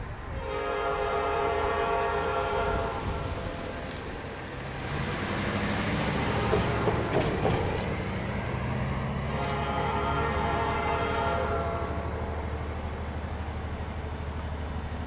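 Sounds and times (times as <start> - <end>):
locomotive horn chord: 0.3 - 3.8, 9.2 - 12.6
diesel engine revving: 2.2 - 10.9
train clanks: 2.7 - 15.0.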